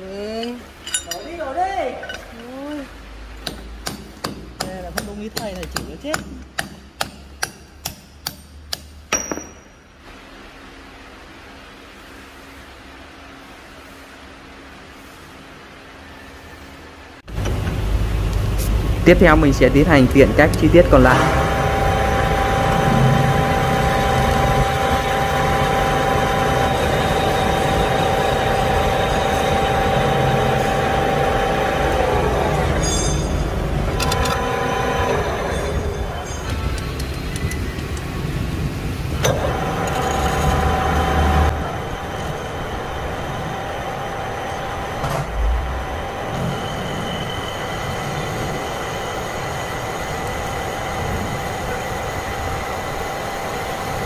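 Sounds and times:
high metallic ring: 0:00.3 - 0:02.6, 0:09.1 - 0:10.0, 0:32.8 - 0:33.6
metal lathe whining: 0:20.4 - 0:38.3, 0:39.1 - 0:54.0.

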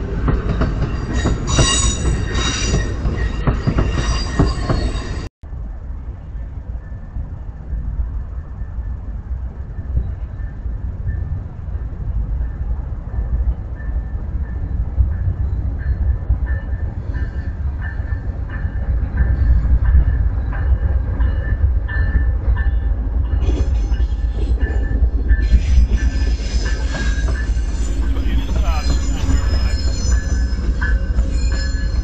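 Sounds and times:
train rumbling on rails: 0:00.0 - 0:32.0
steel wheels squealing on track: 0:01.0 - 0:05.3, 0:23.4 - 0:32.0.

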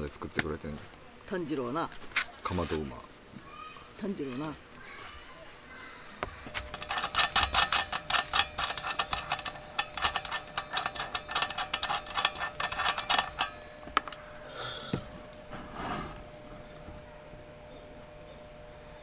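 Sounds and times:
cap rustling scrapes: 0:06.2 - 0:14.1, 0:15.0 - 0:16.6
metal cap clicking as unscrewed: 0:06.5 - 0:14.2.

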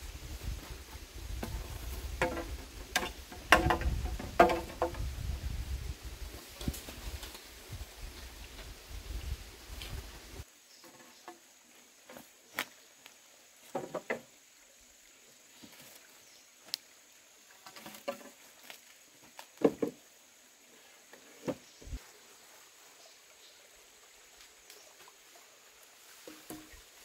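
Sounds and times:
bamboo poles knocking and clattering: 0:00.6 - 0:05.3, 0:13.6 - 0:14.3, 0:17.5 - 0:20.0, 0:26.2 - 0:27.0.

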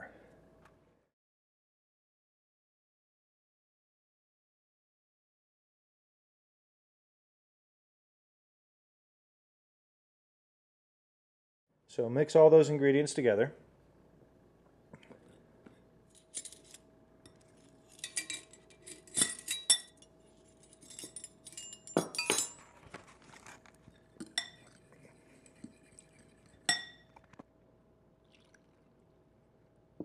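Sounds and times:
metal spoon clinking on glass bowl: 0:16.2 - 0:22.7, 0:24.2 - 0:27.2.

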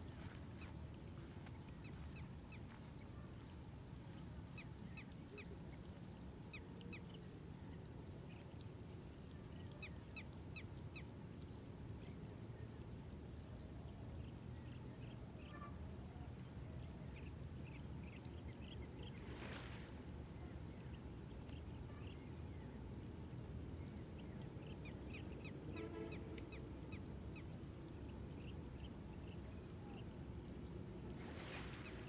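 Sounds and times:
honking bird call: 0:25.8 - 0:26.4.

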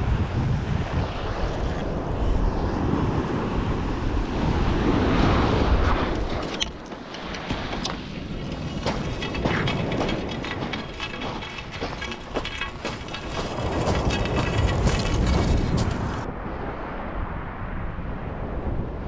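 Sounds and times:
wind buffeting microphone: 0:00.0 - 0:19.0
waves washing over stones: 0:03.0 - 0:16.3
footsteps crunching on shingle: 0:06.2 - 0:16.3.

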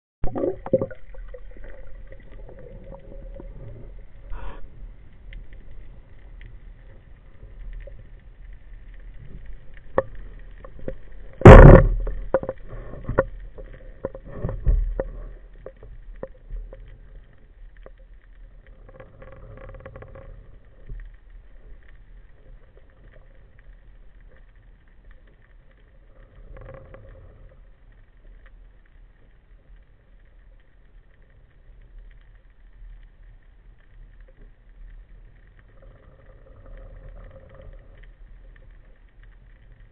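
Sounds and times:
underwater clicks and knocks: 0:00.2 - 0:04.0, 0:08.9 - 0:21.2
low underwater rumble: 0:00.2 - 0:39.9.

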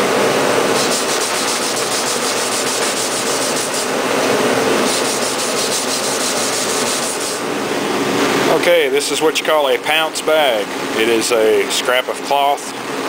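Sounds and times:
sandpaper rubbing on paper: 0:00.7 - 0:04.0, 0:04.8 - 0:07.4.

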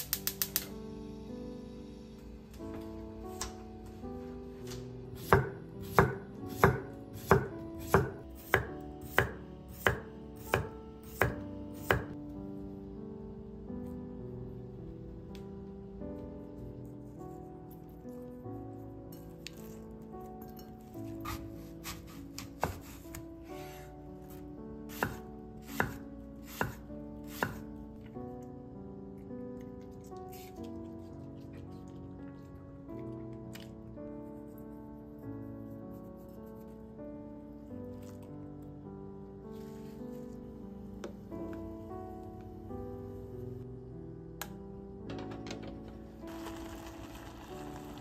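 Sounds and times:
soft background music: 0:00.0 - 0:48.0
knife chopping on wooden board: 0:05.2 - 0:12.2, 0:21.2 - 0:23.0, 0:24.9 - 0:27.6
knife slicing on wooden cutting board: 0:21.2 - 0:23.7.

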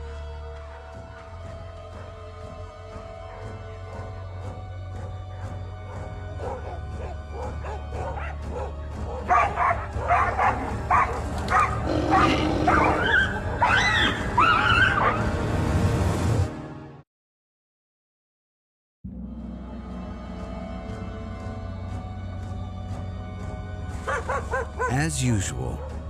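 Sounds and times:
dogs barking: 0:05.9 - 0:15.3, 0:24.0 - 0:24.9
dog yelps: 0:06.4 - 0:15.2, 0:24.1 - 0:24.9.

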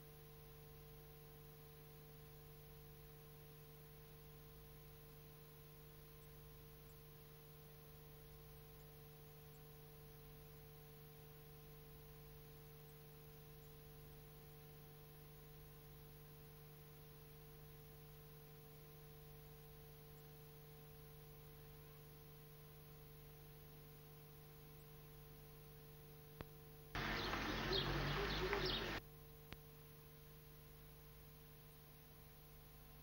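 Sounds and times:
low electrical hum: 0:00.0 - 0:33.0
faint hiss: 0:27.0 - 0:33.0.

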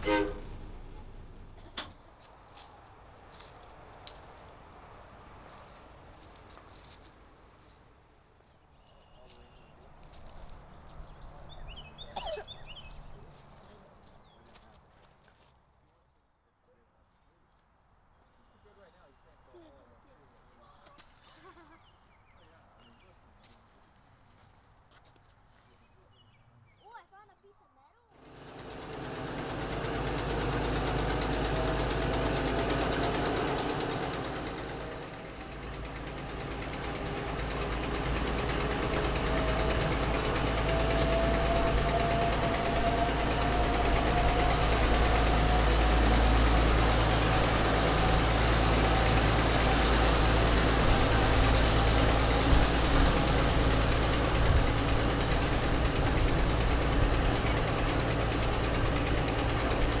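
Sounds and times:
diesel locomotive engine rumble: 0:00.0 - 0:07.7, 0:08.8 - 0:14.4, 0:28.2 - 1:00.0.

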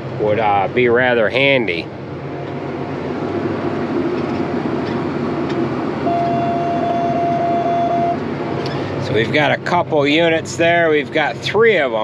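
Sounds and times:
tractor engine running: 0:00.0 - 0:12.0
electronic warning tone: 0:06.0 - 0:08.2.

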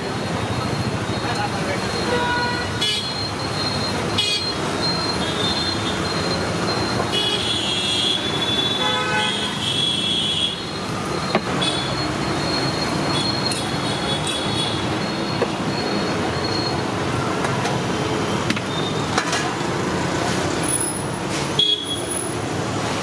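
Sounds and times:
road traffic: 0:00.0 - 0:23.0
vehicle horns: 0:02.0 - 0:03.2, 0:04.1 - 0:04.6, 0:07.1 - 0:10.8.

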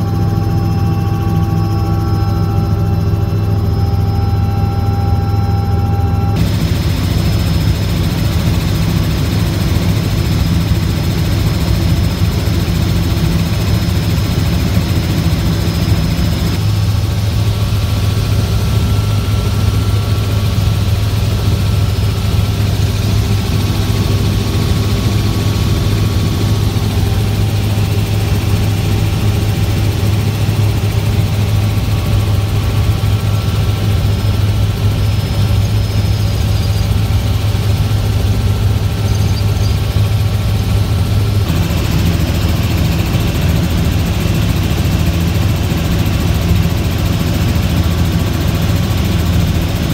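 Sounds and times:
helicopter engine and rotors droning: 0:00.0 - 0:49.9.

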